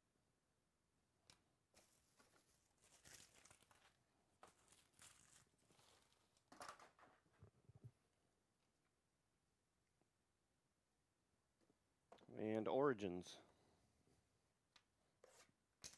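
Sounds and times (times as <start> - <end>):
plastic packaging tearing: 2.8 - 6.2.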